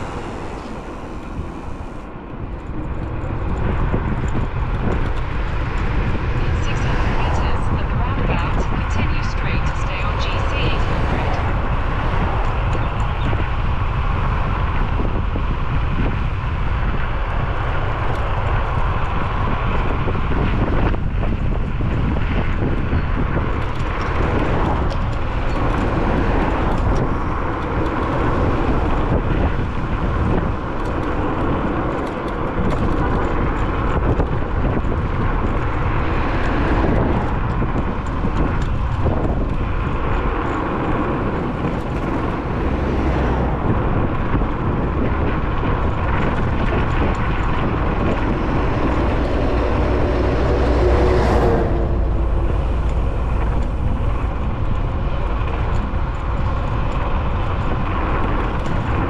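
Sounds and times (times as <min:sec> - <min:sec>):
scooter tyre and road noise: 0:00.0 - 0:59.0
wind rumble on microphone: 0:00.0 - 0:59.0.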